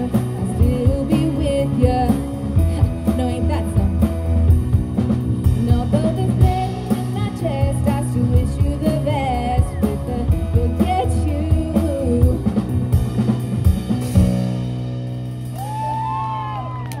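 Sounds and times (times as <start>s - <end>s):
woman singing: 0.0s - 4.2s, 5.5s - 12.7s
live band playing: 0.0s - 17.0s
audience whooping: 15.5s - 17.0s.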